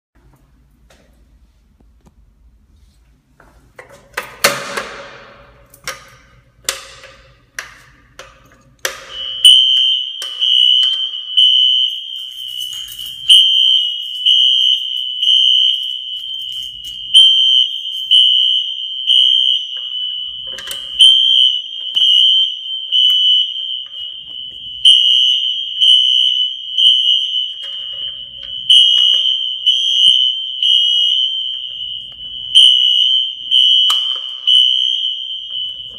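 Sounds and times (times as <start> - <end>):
fire alarm horn tone: 8.9 - 35.9.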